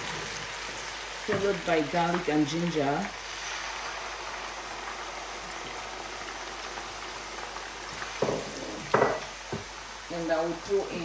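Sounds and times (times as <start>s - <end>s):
onion sizzling in hot oil: 0.0s - 11.0s.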